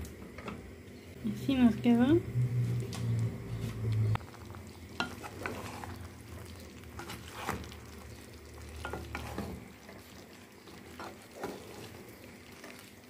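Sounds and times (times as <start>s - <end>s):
low hum: 0.0s - 5.0s
light sizzle: 0.0s - 13.0s
spoon stirring in a pan: 3.6s - 13.0s.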